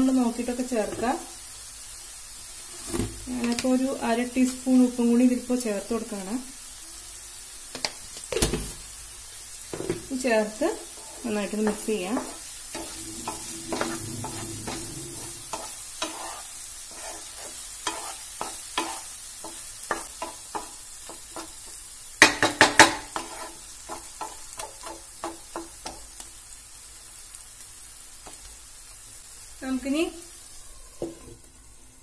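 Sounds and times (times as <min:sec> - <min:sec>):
faint sizzle: 0:00.0 - 0:32.0
spatula scraping pan: 0:10.7 - 0:21.6, 0:22.4 - 0:25.4
spatula knocking pan: 0:11.0 - 0:14.9, 0:17.0 - 0:26.1.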